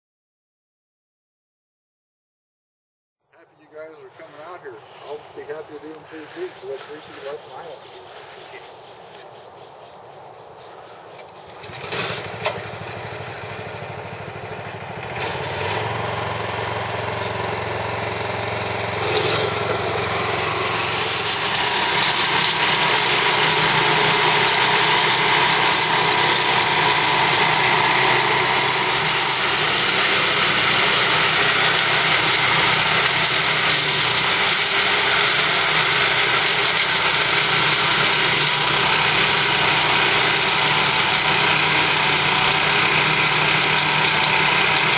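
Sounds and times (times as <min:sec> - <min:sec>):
flail mower running: 0:03.7 - 0:44.9.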